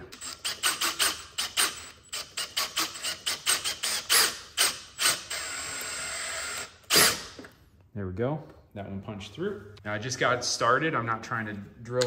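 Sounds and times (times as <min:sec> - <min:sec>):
drill driving screw into sheet metal: 0:00.0 - 0:07.5.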